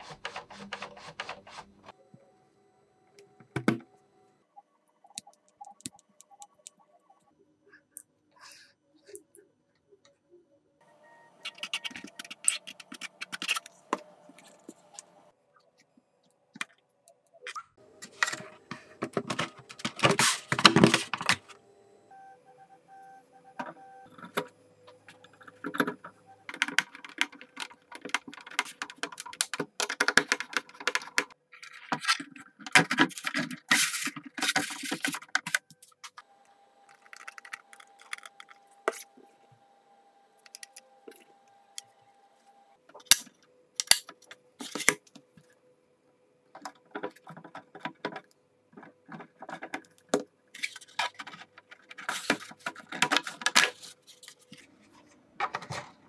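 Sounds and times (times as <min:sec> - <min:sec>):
plastic parts clicking and scraping: 0:11.4 - 0:15.2, 0:16.5 - 0:21.6, 0:25.1 - 0:39.1, 0:40.4 - 0:41.9, 0:42.9 - 0:45.5, 0:46.5 - 0:56.0.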